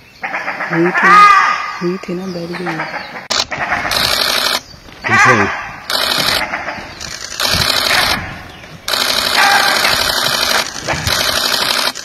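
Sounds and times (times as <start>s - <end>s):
camera shutters clicking rapidly: 3.3s - 4.6s, 5.9s - 8.3s, 8.9s - 12.0s.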